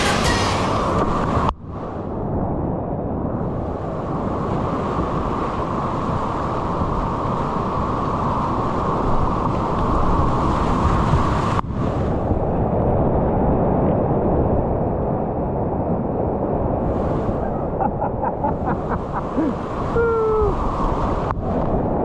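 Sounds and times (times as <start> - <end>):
white-water rapids rushing: 18.4 - 21.2.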